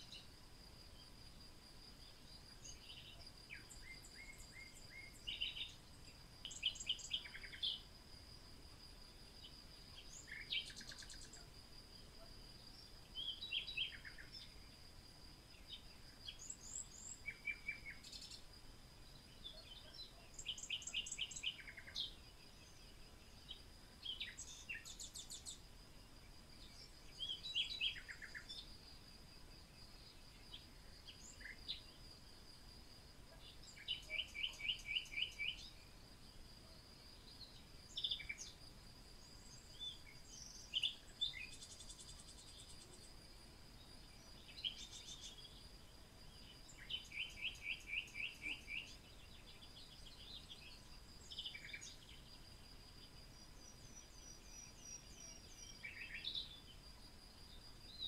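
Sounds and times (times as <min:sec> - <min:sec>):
high insect drone: 0:00.0 - 0:58.0
birds chirping and trilling: 0:02.6 - 0:07.8, 0:19.4 - 0:25.6, 0:33.4 - 0:35.8, 0:46.4 - 0:52.1.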